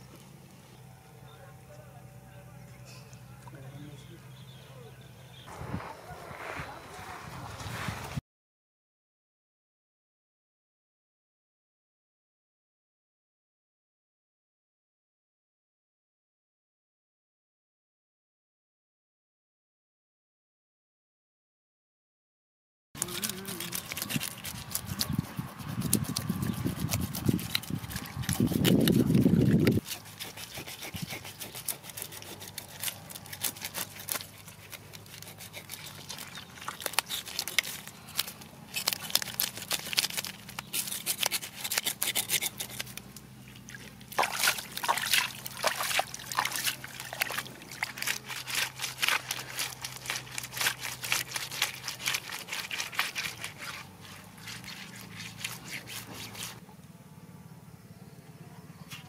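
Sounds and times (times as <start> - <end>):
knife scraping fish scales: 23.0 - 43.2, 44.2 - 56.6.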